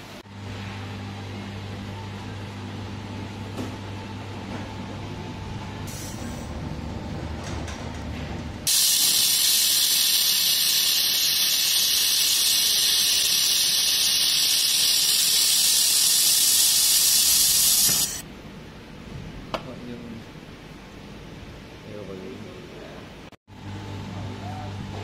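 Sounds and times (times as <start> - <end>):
low machine hum: 0.0 - 25.0
laser welder hissing: 8.7 - 18.2.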